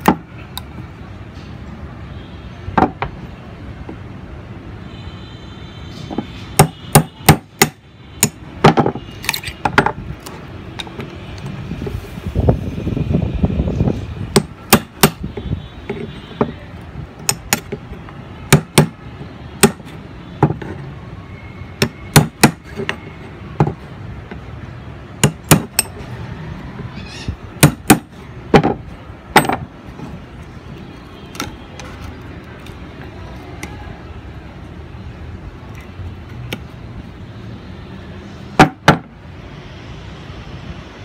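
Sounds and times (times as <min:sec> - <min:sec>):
hammer striking metal chisel: 0:06.6 - 0:09.9, 0:18.5 - 0:19.0, 0:19.6 - 0:20.6, 0:21.8 - 0:23.0, 0:25.2 - 0:26.0, 0:27.6 - 0:29.6.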